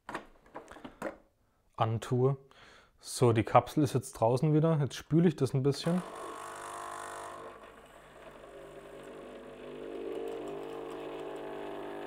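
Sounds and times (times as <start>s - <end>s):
machine pump humming: 6.0s - 12.0s.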